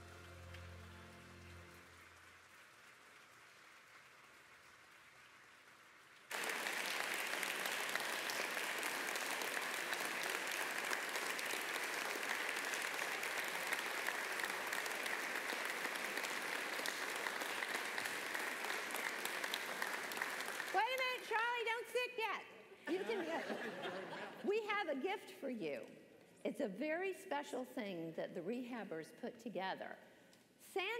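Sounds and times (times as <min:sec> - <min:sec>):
crowd applauding: 0:00.0 - 0:21.6.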